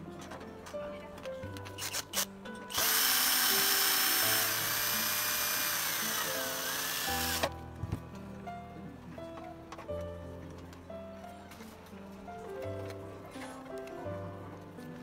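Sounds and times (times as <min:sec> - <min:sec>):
cordless drill driving screw: 0:01.8 - 0:07.6.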